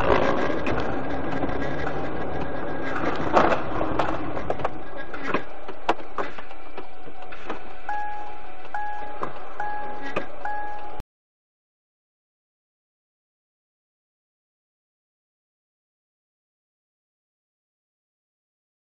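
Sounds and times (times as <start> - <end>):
car engine and road noise: 0.0 - 11.0
electronic beep: 7.7 - 11.0.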